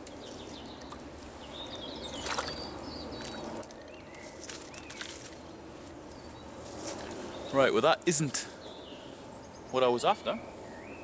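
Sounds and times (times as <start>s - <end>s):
water splashing: 2.2s - 3.5s.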